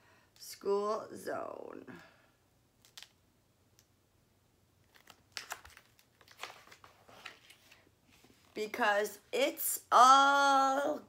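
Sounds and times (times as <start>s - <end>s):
paper pages rustling: 4.8s - 8.6s.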